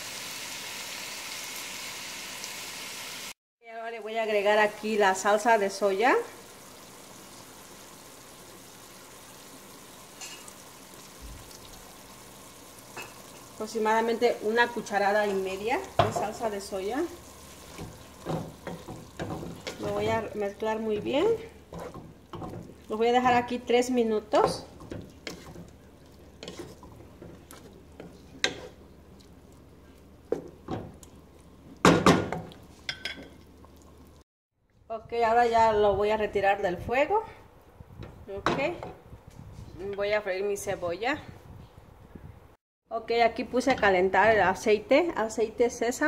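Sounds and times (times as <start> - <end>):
beef sizzling in oil: 0.0 - 3.4, 4.5 - 34.2
wooden spoon stirring in metal pot: 13.0 - 34.0.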